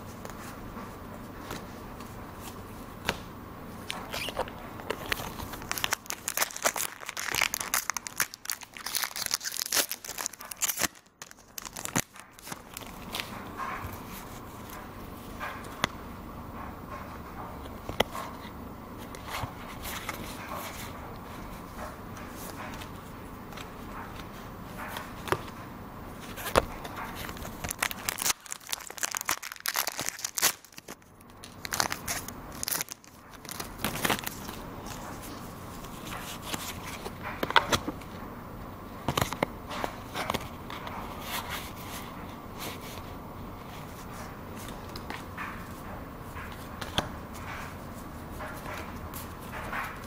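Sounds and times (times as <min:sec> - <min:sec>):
cards crackling and rustling: 0:03.9 - 0:15.9, 0:26.2 - 0:38.1, 0:39.0 - 0:50.0
trading cards clicking and slapping: 0:03.9 - 0:16.0, 0:26.3 - 0:38.1.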